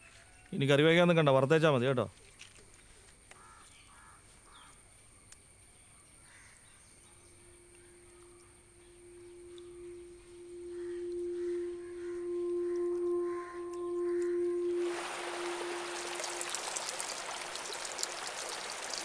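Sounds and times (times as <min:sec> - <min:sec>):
low drone tone: 0:07.4 - 0:18.6.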